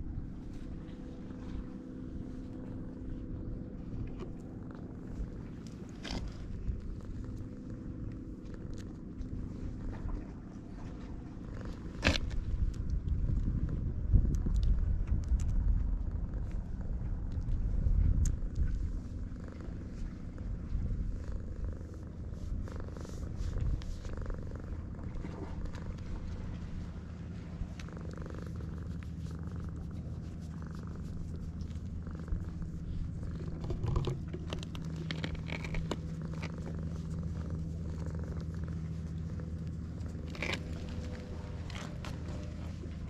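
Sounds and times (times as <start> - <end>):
cat purring: 0.0 - 43.0
hand rustling on fur: 19.8 - 33.6.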